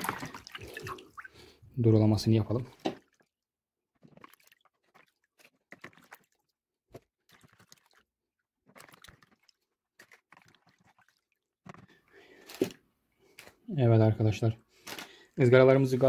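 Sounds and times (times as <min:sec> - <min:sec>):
water splashing and dripping: 0:00.0 - 0:01.6, 0:02.4 - 0:03.4, 0:04.0 - 0:11.9.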